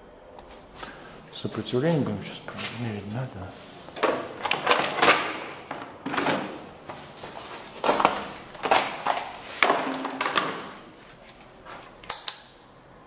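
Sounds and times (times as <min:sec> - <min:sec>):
hard plastic items clattering: 0:04.0 - 0:12.1.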